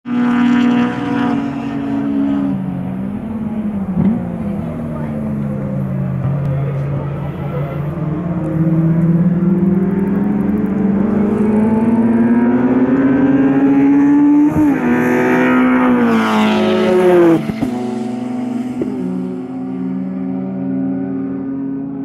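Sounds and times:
car engine accelerating hard: 0.1 - 22.0.

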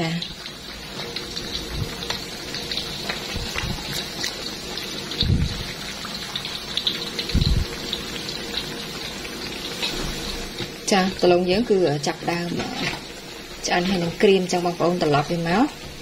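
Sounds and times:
deep-frying sizzle and crackling: 0.0 - 16.0
dull low thumps: 5.2 - 5.6.

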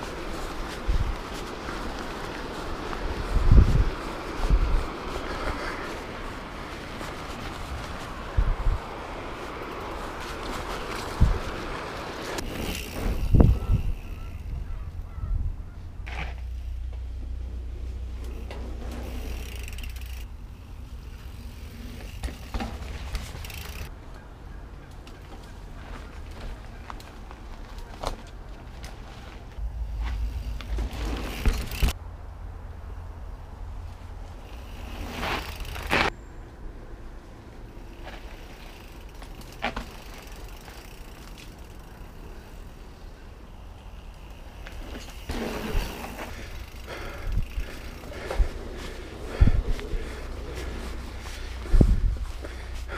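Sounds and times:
wind rumble on microphone: 0.0 - 9.4, 10.0 - 11.8, 12.9 - 16.1, 47.2 - 52.6
bike tyres crunching over dirt: 0.0 - 32.0, 33.0 - 52.9
low wind rumble: 0.0 - 52.9
bike knocking off wooden ramp: 12.4 - 13.7
freewheel hub ticking: 18.0 - 23.9, 37.8 - 51.8.

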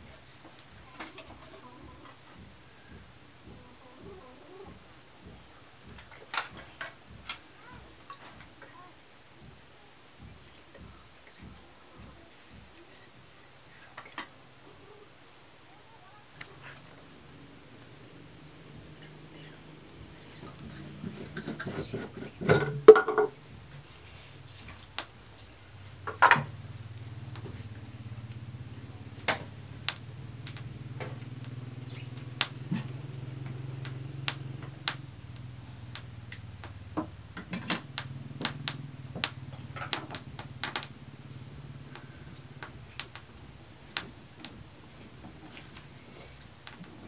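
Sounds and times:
low steady hum: 0.0 - 47.0
firewood sticks knocking: 19.9 - 23.9, 25.8 - 28.0, 29.2 - 41.0.

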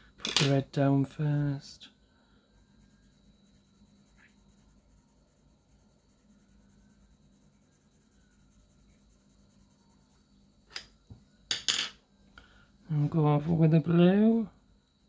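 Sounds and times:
low steady hum: 0.0 - 15.0
pencil scratching on paper: 2.5 - 10.3.

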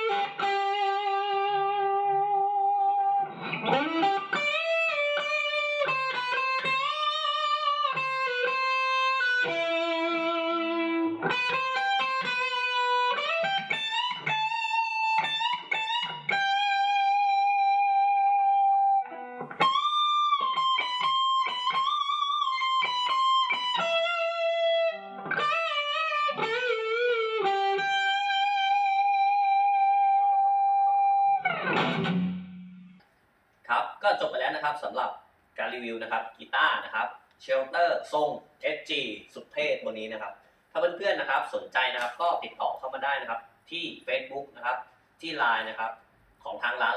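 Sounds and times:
electric guitar lead solo: 0.0 - 33.0.

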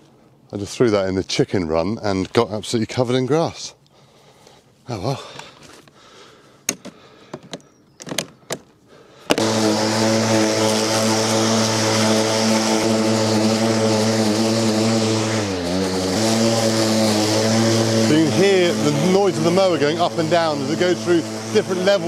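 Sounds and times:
lawn mower running: 9.3 - 22.0.

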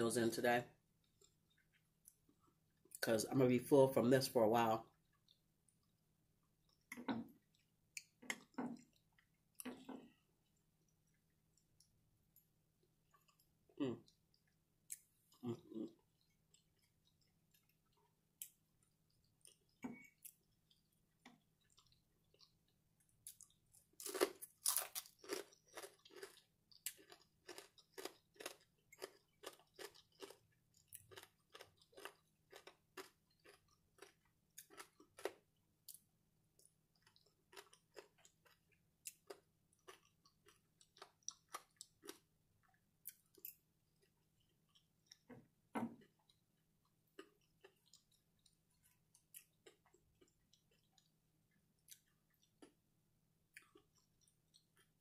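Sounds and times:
crunchy chewing: 23.2 - 36.0, 36.6 - 45.3.

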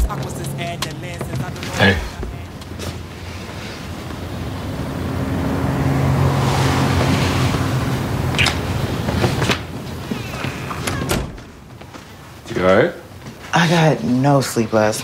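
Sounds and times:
vehicle passing: 0.0 - 10.6.

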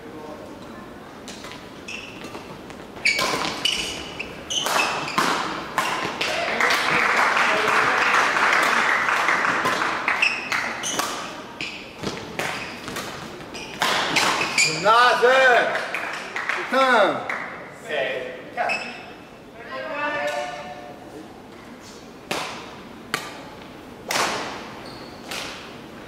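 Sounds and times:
shoes thudding and squeaking: 1.6 - 6.2, 10.2 - 14.8, 24.4 - 25.6
racket striking shuttlecock: 4.6 - 6.4, 12.0 - 14.6, 22.3 - 23.4, 24.0 - 24.7.

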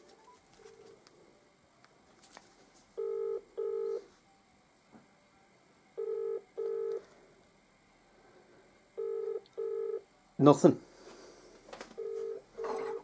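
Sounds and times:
telephone ringing tone: 3.0 - 4.1, 6.0 - 7.1, 9.0 - 10.1, 12.0 - 13.0.

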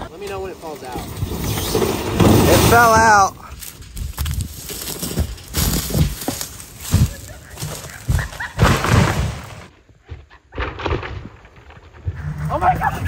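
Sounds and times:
tractor tire thudding on grass: 1.8 - 9.7.

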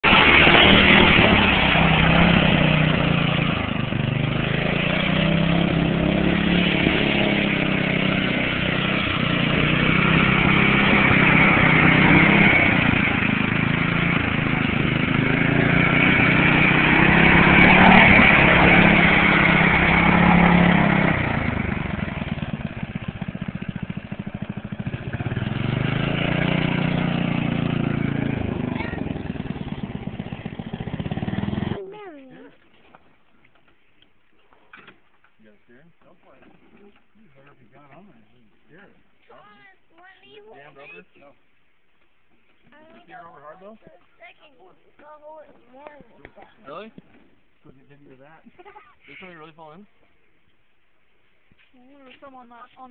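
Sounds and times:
riding lawn mower engine: 0.0 - 31.8.

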